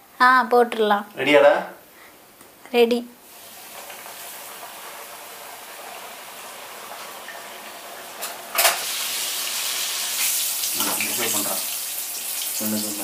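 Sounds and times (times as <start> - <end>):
chicken deep-frying in oil: 3.2 - 13.0.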